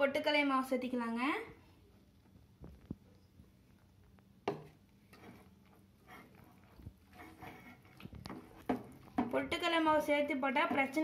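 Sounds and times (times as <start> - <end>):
dough being kneaded by hand: 2.3 - 11.0.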